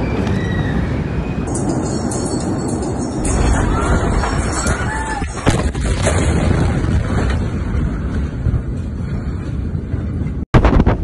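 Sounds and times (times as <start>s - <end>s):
low rumble: 0.0s - 11.0s
wind buffeting microphone: 0.0s - 11.0s
explosion bang: 3.3s - 7.9s.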